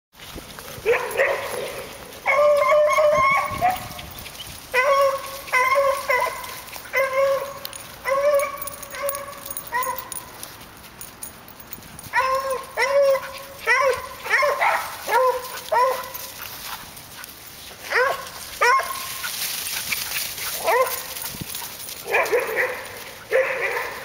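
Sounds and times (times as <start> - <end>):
dog yelping barks: 0.8 - 1.6, 2.2 - 4.0, 4.7 - 10.2, 12.1 - 16.2, 17.9 - 19.2, 20.6 - 21.2, 22.0 - 24.0.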